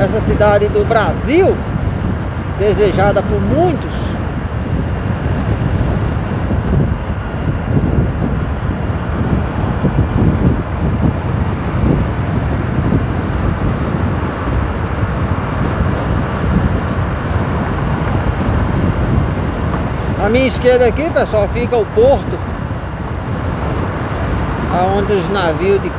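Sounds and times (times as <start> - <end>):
wind buffeting microphone: 0.0 - 25.9
motorcycle engine: 1.3 - 20.8.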